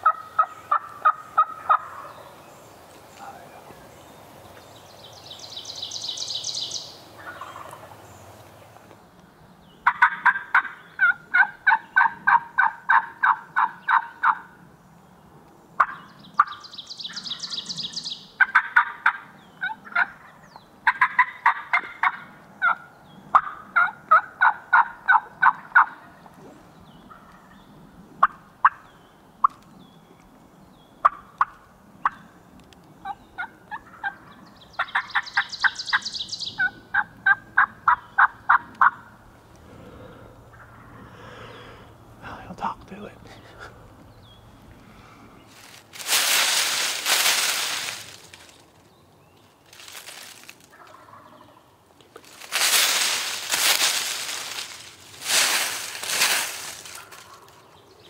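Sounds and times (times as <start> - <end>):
turkey call yelps: 0.0 - 2.1, 9.8 - 14.5, 15.8 - 17.4, 18.4 - 20.3, 20.9 - 22.8, 34.8 - 39.1.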